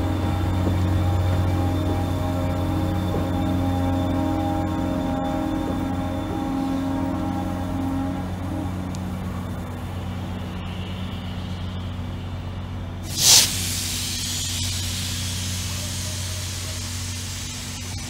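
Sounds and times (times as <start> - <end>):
locomotive engine running: 0.0 - 18.0
air hiss: 13.0 - 18.0.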